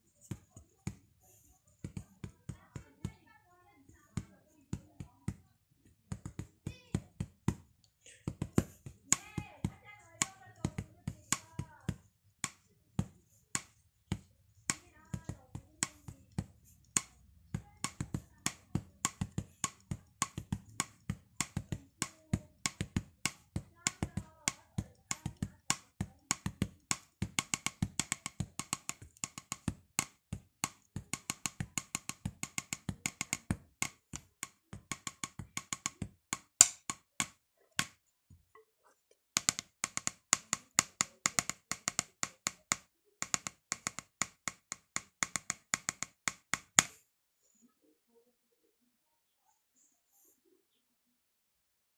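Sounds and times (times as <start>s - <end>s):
drumsticks striking practice pad: 17.8s - 38.0s.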